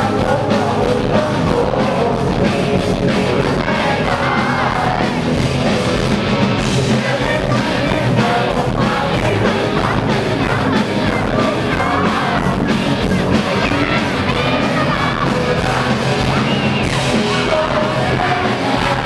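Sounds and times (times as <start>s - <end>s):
person singing and shouting: 0.0s - 5.4s, 6.9s - 19.0s
live rock band playing: 0.0s - 19.0s.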